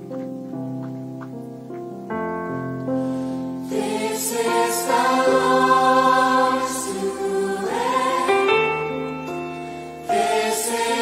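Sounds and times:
sustained instrumental chords: 0:02.2 - 0:11.0
choir singing: 0:03.6 - 0:11.0.

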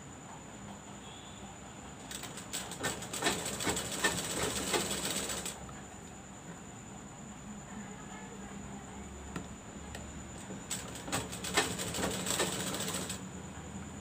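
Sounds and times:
sewing machine clacking: 0:02.0 - 0:05.6, 0:10.6 - 0:13.2.

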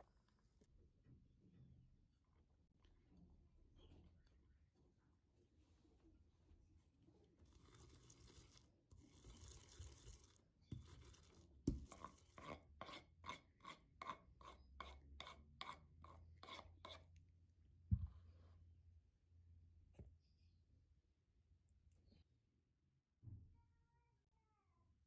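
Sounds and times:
metal spoon scraping wooden board: 0:07.5 - 0:17.1.

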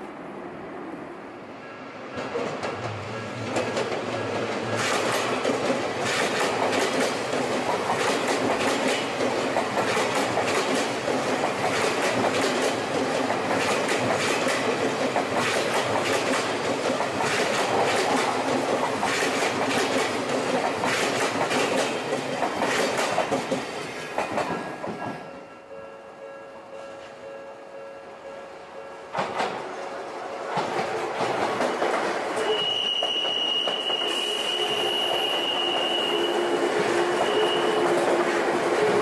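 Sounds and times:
electric train passing: 0:00.0 - 0:39.0
train wheels clattering over joints: 0:02.2 - 0:25.3, 0:30.5 - 0:34.0.

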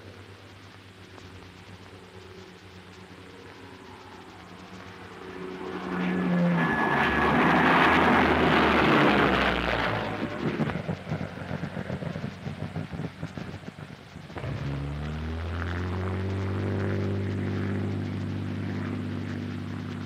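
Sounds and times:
engine hum: 0:00.0 - 0:20.0
aircraft flying past on loudspeaker: 0:03.2 - 0:12.8.

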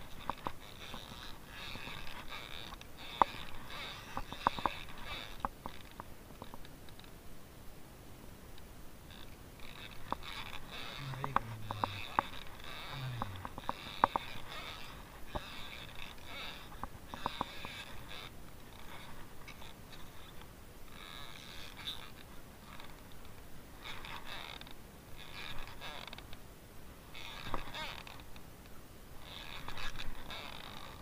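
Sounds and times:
fishing reel rasping winding: 0:00.2 - 0:05.8, 0:09.1 - 0:22.2, 0:27.2 - 0:28.2, 0:29.2 - 0:31.0.

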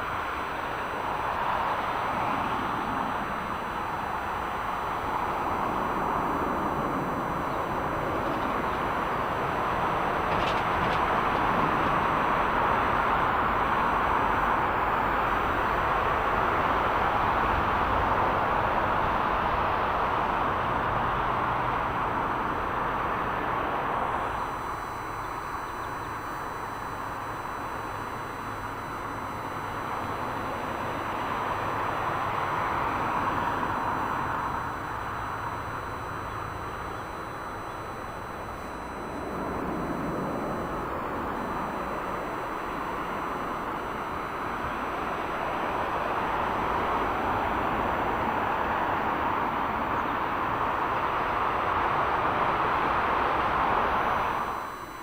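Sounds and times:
jet engines roaring: 0:00.0 - 0:55.0.

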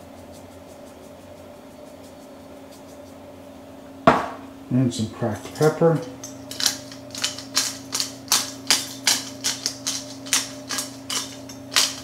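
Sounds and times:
steady low hum: 0:00.0 - 0:12.0
pepper grinder clicking: 0:06.1 - 0:12.0.

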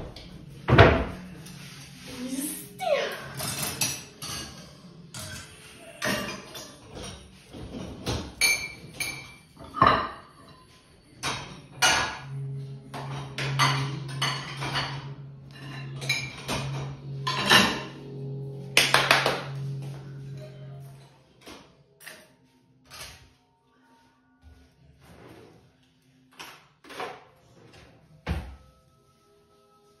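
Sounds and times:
crockery and cutlery clinking: 0:00.0 - 0:23.3
low steady hum: 0:11.2 - 0:22.0.

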